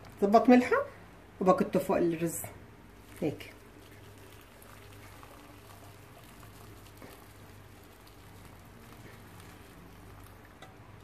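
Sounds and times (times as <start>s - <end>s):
water trickling onto rice: 2.8s - 11.0s.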